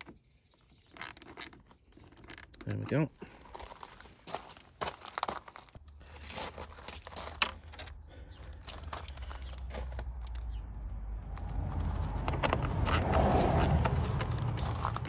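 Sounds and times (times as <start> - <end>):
small metal clicks: 0.0 - 2.7.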